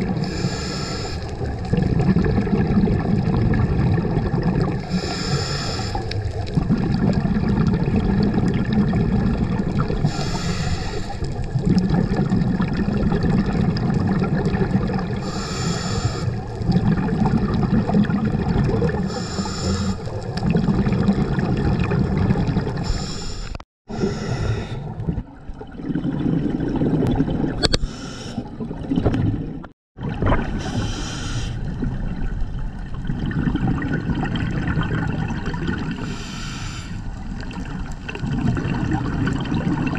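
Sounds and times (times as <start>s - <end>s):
bubbling rumble: 0.0s - 0.5s, 1.3s - 23.2s, 23.9s - 39.9s
regulator breathing hiss: 0.2s - 1.3s, 4.9s - 6.1s, 10.1s - 11.2s, 15.2s - 16.4s, 19.1s - 20.1s, 22.8s - 24.8s, 27.8s - 28.4s, 30.6s - 31.6s, 36.0s - 37.0s.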